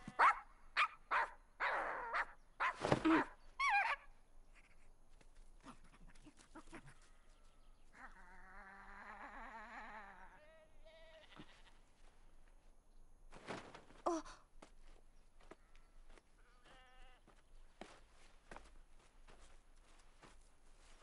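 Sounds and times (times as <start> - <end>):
faint wavering animal cry: 7.9 - 11.6.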